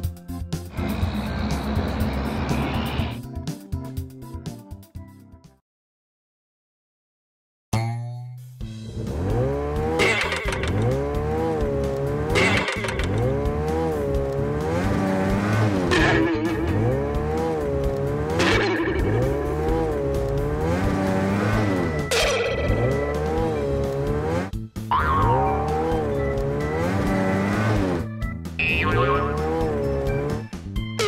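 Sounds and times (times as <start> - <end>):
background music: 0.0 - 5.6, 7.8 - 31.0
cartoon engine revving effect: 15.8 - 17.5, 18.2 - 19.8, 21.1 - 23.7, 24.9 - 28.0, 28.6 - 30.1
sharp hits: 18.3 - 19.4.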